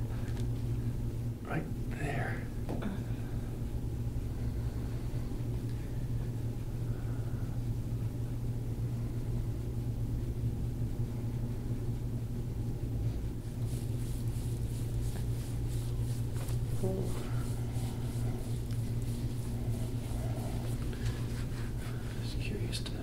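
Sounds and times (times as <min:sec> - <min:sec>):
steady low hum: 0:00.0 - 0:23.0
hands rubbing in massage: 0:13.0 - 0:23.0.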